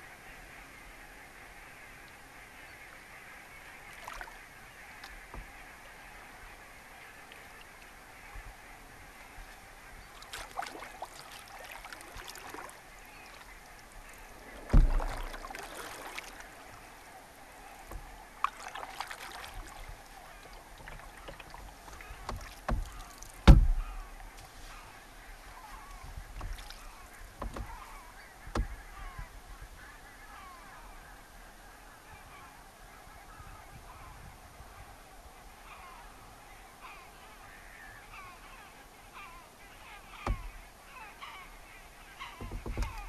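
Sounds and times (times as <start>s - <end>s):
distant geese honking: 0.0s - 43.0s
canoe paddle knocks and splashes: 10.2s - 16.8s, 17.8s - 24.4s, 25.6s - 29.3s, 40.1s - 40.7s, 42.2s - 43.0s.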